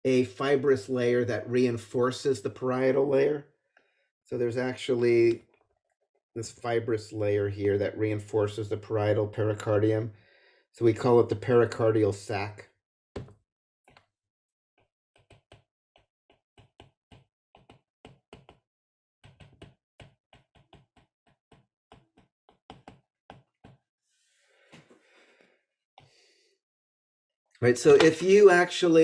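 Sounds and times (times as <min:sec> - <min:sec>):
stylus tapping on tablet screen: 0:15.2 - 0:18.6, 0:19.2 - 0:23.8.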